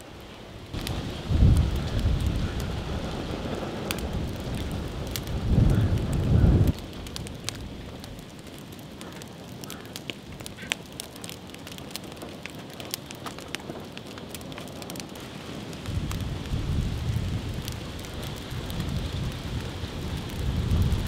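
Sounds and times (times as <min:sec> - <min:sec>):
fire steady hiss: 0:00.0 - 0:21.0
log fire crackling and popping: 0:00.0 - 0:21.0.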